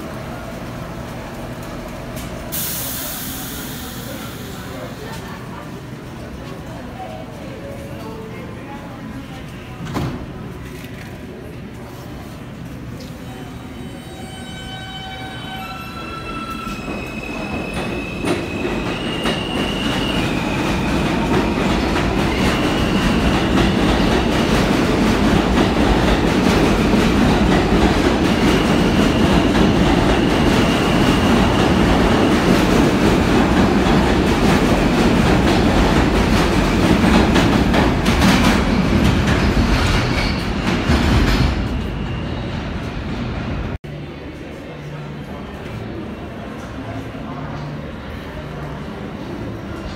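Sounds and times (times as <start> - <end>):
train wheels rumbling over rails: 16.6 - 43.8.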